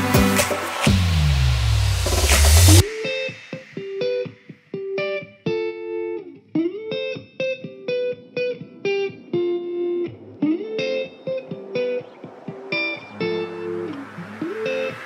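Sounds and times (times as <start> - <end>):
guitar picking single notes: 3.0 - 15.0.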